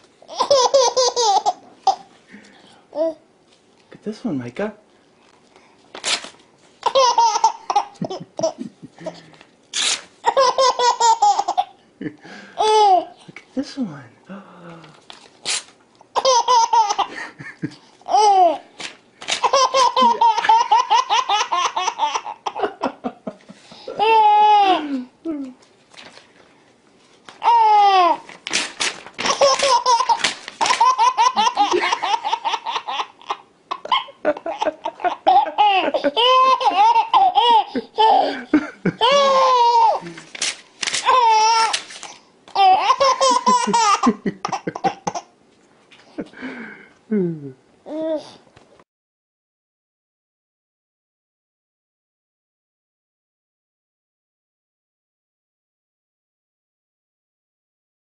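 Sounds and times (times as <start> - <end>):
baby giggling: 0.3 - 2.1, 6.8 - 9.2, 10.2 - 11.8, 12.6 - 13.2, 16.1 - 17.2, 18.0 - 18.6, 19.4 - 23.0, 23.7 - 24.9, 27.4 - 28.2, 29.2 - 40.2, 41.0 - 41.8, 42.5 - 45.3
paper tearing: 5.9 - 6.4, 9.7 - 10.1, 15.1 - 15.8, 18.8 - 19.5, 28.2 - 31.6, 40.1 - 42.2
baby squealing: 39.0 - 40.0.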